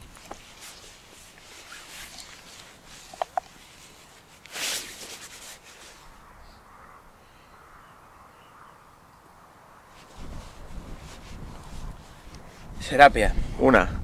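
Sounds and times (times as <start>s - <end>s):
padded jackets rustling: 0.0s - 6.2s.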